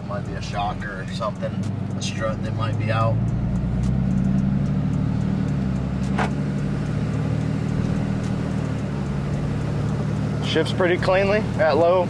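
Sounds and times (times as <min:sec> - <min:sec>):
diesel truck engine at low revs: 0:00.0 - 0:12.0.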